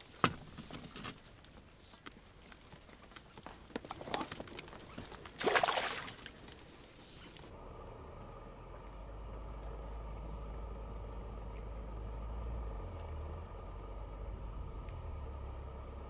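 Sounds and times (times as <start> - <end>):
water splashing: 4.0 - 7.5
steady low hum: 4.1 - 16.0.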